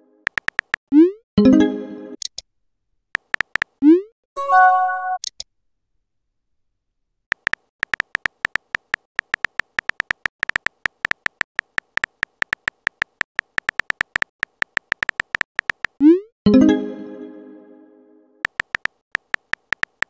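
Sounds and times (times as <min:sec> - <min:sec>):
phone keyboard key clicks: 0:00.3 - 0:00.8, 0:03.2 - 0:03.8, 0:07.3 - 0:16.0, 0:18.4 - 0:20.0.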